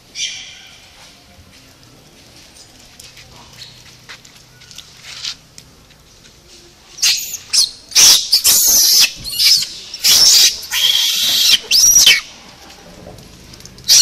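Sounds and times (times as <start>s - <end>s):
monkeys screeching: 7.0s - 12.3s.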